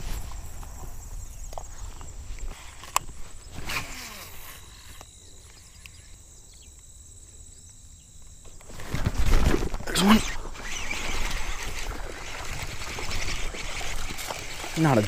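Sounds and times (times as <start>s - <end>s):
wind rustling on microphone: 0.0s - 6.1s, 8.3s - 15.0s
faint high insect-like tone: 0.0s - 15.0s
reel spool whirring: 8.6s - 15.0s
fishing line swish: 8.7s - 14.8s.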